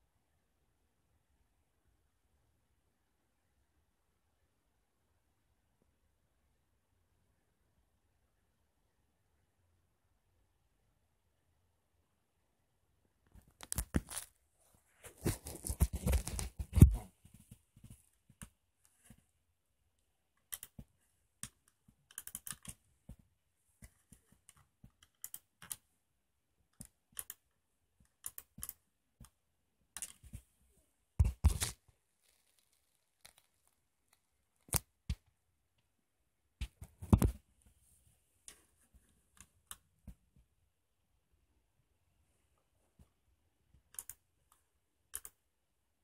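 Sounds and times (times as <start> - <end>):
small clicks and rustles: 31.2 - 35.2.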